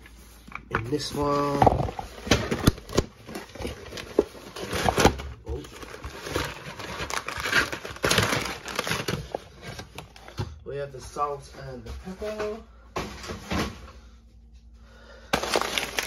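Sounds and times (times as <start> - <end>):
plastic bag crinkling: 1.0 - 10.3, 15.3 - 16.0.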